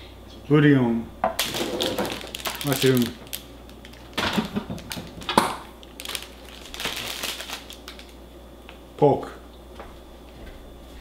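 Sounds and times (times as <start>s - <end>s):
plastic bag crinkling: 1.4s - 8.2s.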